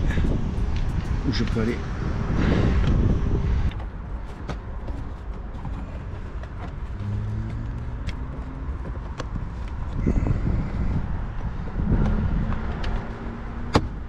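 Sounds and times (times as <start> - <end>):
low rumble: 0.0 - 4.2, 5.6 - 12.6.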